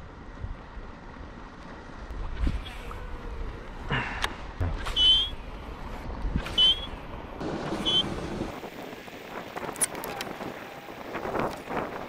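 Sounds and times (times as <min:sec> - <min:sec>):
wind buffeting microphone: 0:02.0 - 0:12.0
short high chirps: 0:04.8 - 0:05.4, 0:06.6 - 0:07.0, 0:07.8 - 0:08.1.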